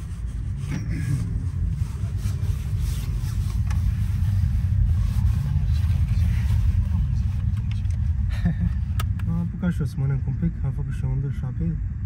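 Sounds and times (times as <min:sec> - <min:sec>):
car engine rumble: 0:00.0 - 0:12.0
road noise inside car: 0:00.0 - 0:12.0.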